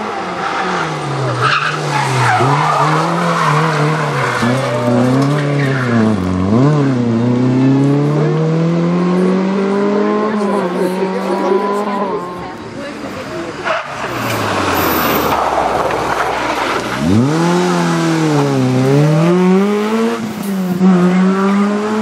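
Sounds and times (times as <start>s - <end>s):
tyres skidding on gravel: 0.0s - 6.7s, 12.8s - 20.6s
rally car engine revving: 0.0s - 22.0s.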